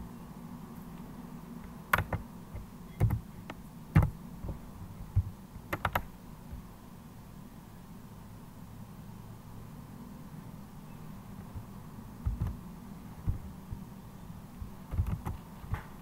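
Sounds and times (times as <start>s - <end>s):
keyboard keys clicking: 1.9s - 4.6s, 5.2s - 6.6s, 11.4s - 12.6s, 13.2s - 13.8s, 14.6s - 16.0s
low hum: 10.5s - 16.0s.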